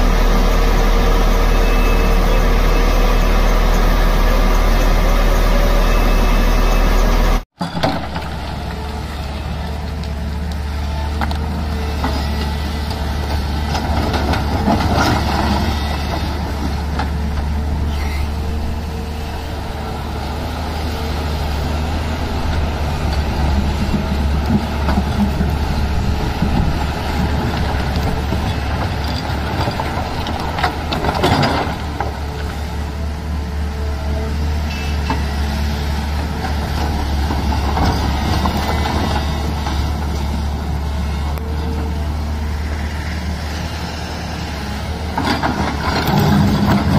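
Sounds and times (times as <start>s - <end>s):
excavator diesel engine droning: 0.0s - 46.9s.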